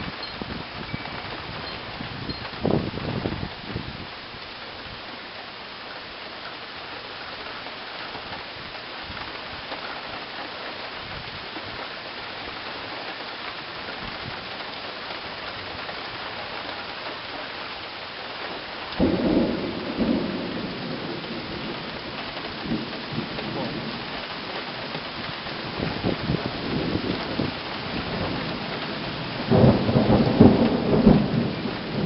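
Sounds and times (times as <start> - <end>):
steady rain falling: 0.0 - 32.0
thunder clap rumbling: 19.0 - 32.0.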